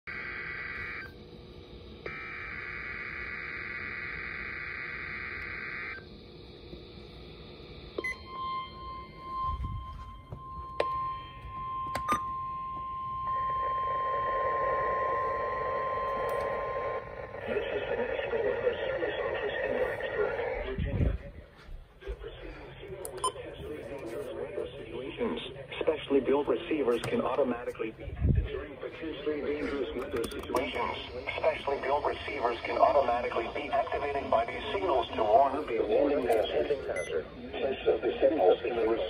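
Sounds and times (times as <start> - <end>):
steady warning alarm tone: 0.1 - 20.7, 28.6 - 39.0
rushing radio static: 14.8 - 39.0.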